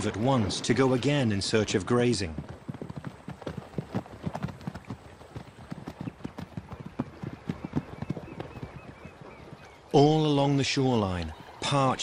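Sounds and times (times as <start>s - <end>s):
hoofbeats on dry ground: 2.3s - 9.8s.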